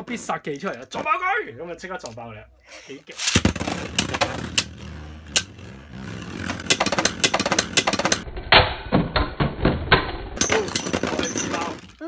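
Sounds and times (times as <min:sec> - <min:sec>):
spinning tops whirring: 0:03.2 - 0:08.2.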